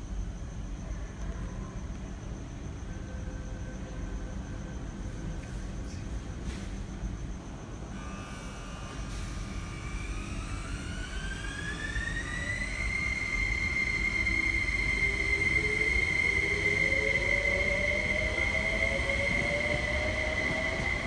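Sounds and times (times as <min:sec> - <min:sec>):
electric train motor whine: 0:07.3 - 0:21.0
lower motor tone climbing: 0:08.0 - 0:21.0.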